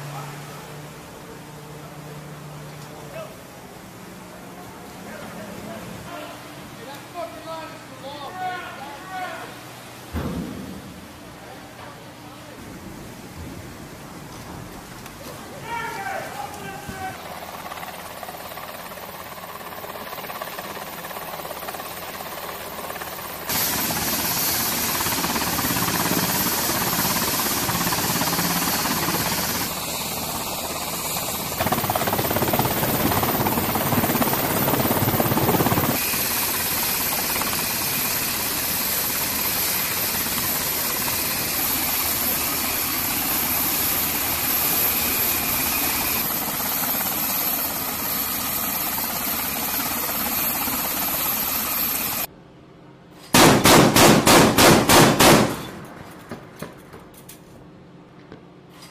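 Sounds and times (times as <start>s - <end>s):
helicopter turbine whine: 15.4s - 52.3s
rotor and engine noise: 16.4s - 52.3s.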